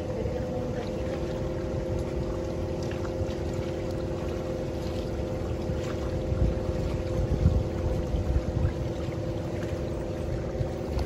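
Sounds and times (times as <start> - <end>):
boat motor hum: 0.0 - 11.0
low rumbling noise: 0.0 - 11.0
water wash: 0.0 - 11.0.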